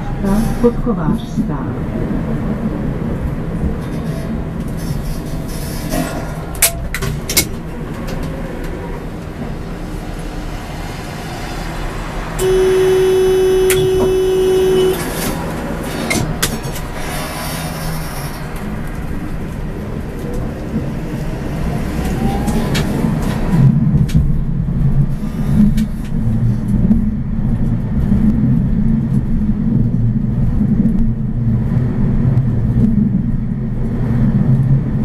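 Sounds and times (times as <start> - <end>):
tram wheels rumbling on rails: 0.0 - 35.0
tram horn: 12.3 - 15.5.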